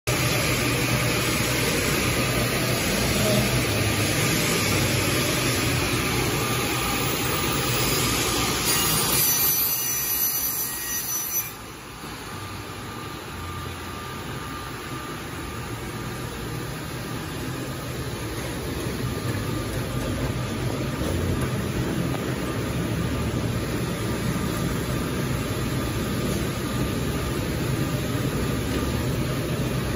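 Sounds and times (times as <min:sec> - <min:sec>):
woodworking machine running: 0:00.1 - 0:10.9.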